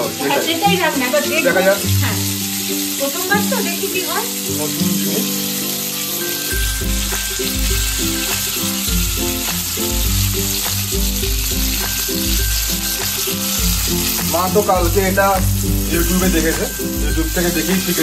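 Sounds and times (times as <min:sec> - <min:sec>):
food sizzling in hot oil: 0:00.0 - 0:18.0
music with repeating bass beat: 0:06.5 - 0:18.0.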